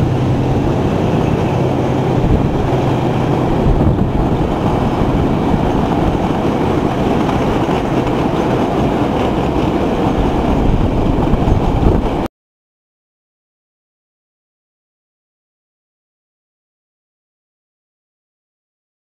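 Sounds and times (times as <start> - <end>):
diesel locomotive passing: 0.0 - 12.3.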